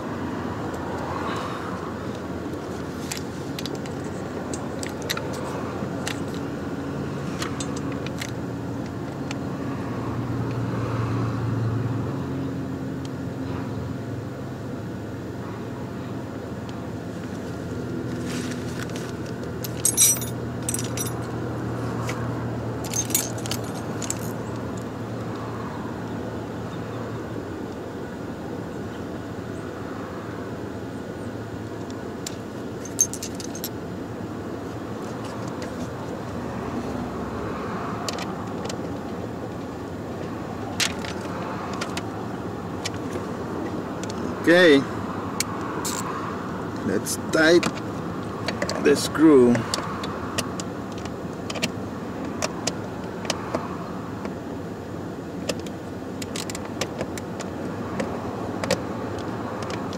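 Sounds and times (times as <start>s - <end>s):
metal parts clinking: 7.3s - 8.4s, 18.7s - 21.3s, 22.8s - 24.4s, 32.8s - 33.7s, 45.8s - 46.1s.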